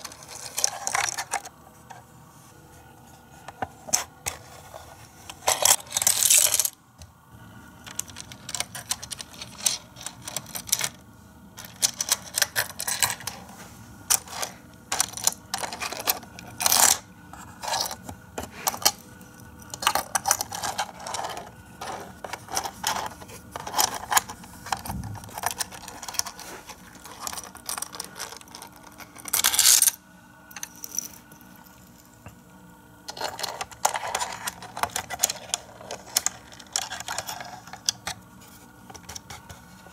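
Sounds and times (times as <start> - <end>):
plastic toy pieces clicking: 11.6 - 13.3.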